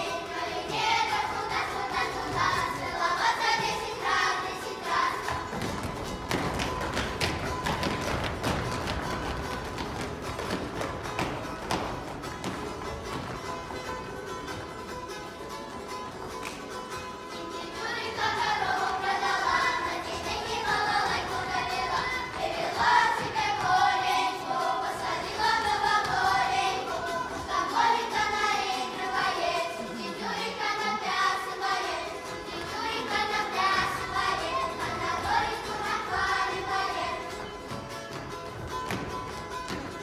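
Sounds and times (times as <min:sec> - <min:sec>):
children singing in chorus: 0:00.0 - 0:08.7, 0:17.6 - 0:37.7.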